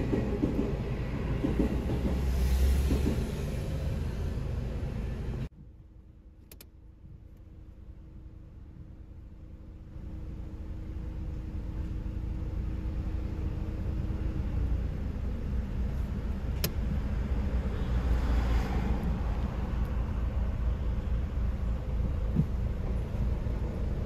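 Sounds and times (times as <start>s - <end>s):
road traffic rumble: 0.0s - 24.0s
sharp click: 6.4s - 6.7s.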